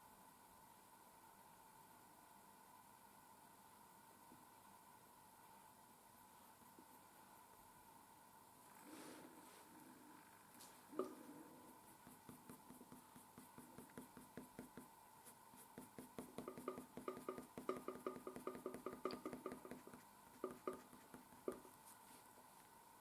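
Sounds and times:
pencil scratching on paper: 11.6 - 22.1.

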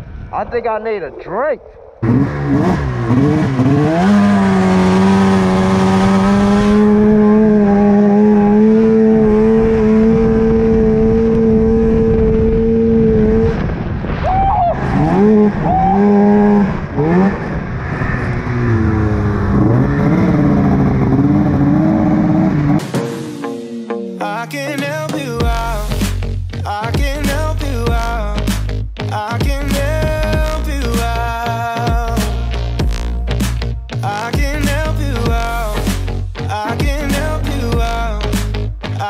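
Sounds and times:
snowmobile engine revving: 1.2 - 22.8.

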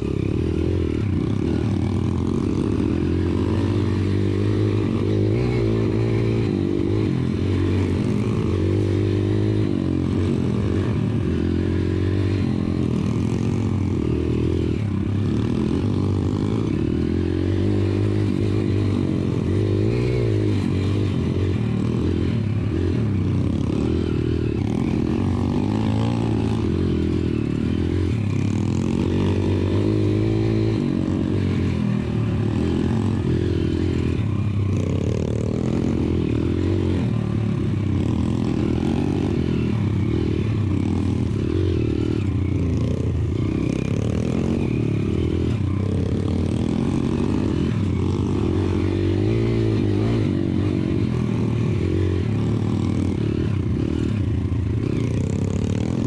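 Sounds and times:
motorbike engine revving: 0.0 - 56.0.

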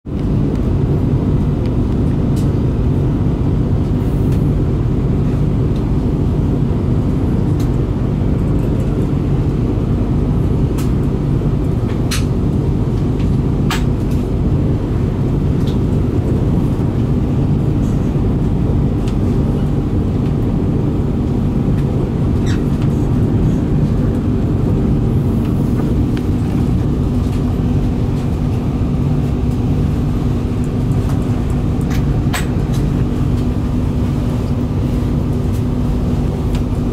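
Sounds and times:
train rumbling on rails: 0.1 - 36.9.

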